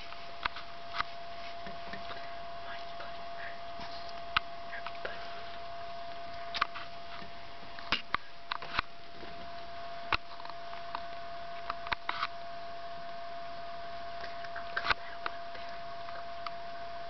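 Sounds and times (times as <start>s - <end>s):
kittens snuffling: 0.0s - 8.4s
faint hum: 0.0s - 17.0s.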